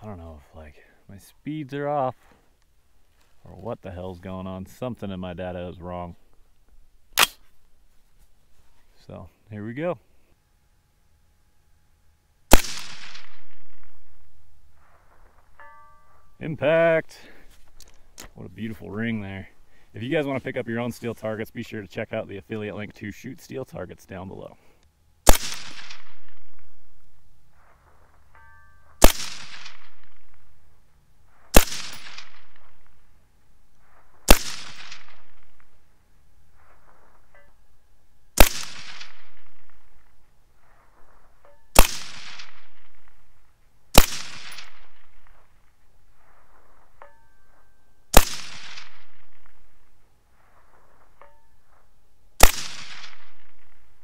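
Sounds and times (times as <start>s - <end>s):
rolling echo of shots: 12.5s - 13.9s, 25.3s - 26.5s, 29.0s - 30.3s, 31.6s - 32.7s, 34.3s - 35.6s, 38.4s - 39.7s, 41.8s - 43.0s, 44.0s - 45.2s, 48.1s - 49.6s, 52.4s - 53.8s
suppressed rifle shots: 12.5s - 14.9s, 25.2s - 27.0s, 29.0s - 33.1s, 33.8s - 35.9s, 38.4s - 40.2s, 41.4s - 45.5s, 48.1s - 50.0s, 52.4s - 54.0s
distant steel target ringing: 15.4s - 16.5s.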